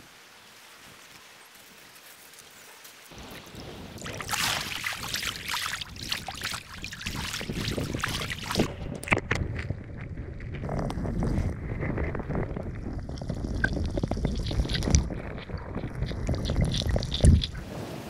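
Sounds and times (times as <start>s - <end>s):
seawater splashing: 3.2s - 9.1s
muffled underwater rush: 3.5s - 18.0s.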